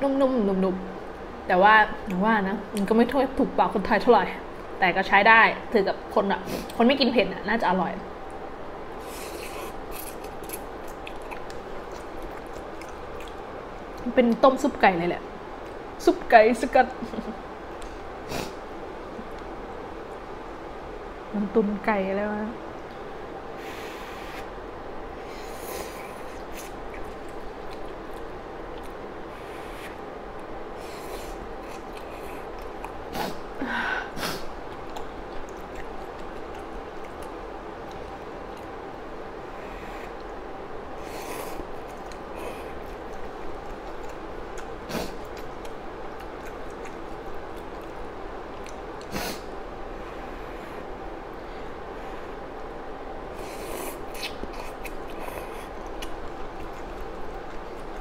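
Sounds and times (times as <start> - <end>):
steady background noise: 0.0 - 58.0
slurping and mouth noises: 25.4 - 30.1, 53.3 - 58.0.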